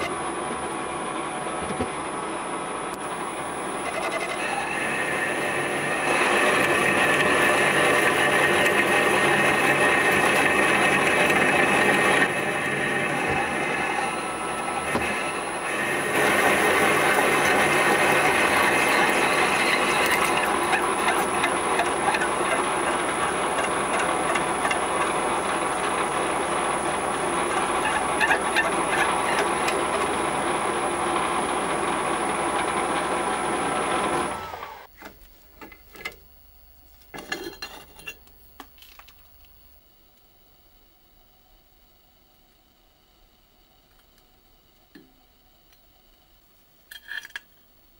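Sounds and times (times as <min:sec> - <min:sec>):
lathe drill grinding cut: 0:00.0 - 0:34.9.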